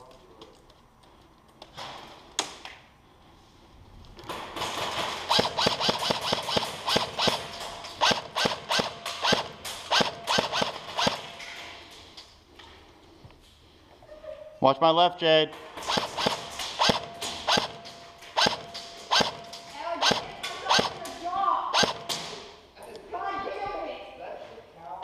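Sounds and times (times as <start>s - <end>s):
airsoft rifle single shots: 21.8s - 22.4s.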